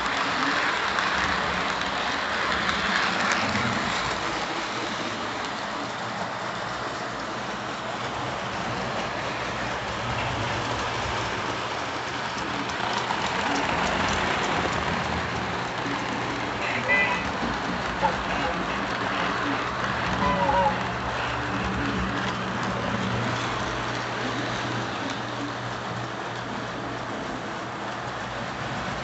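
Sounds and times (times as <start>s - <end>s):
model train wheels rolling on track: 0.0s - 29.0s.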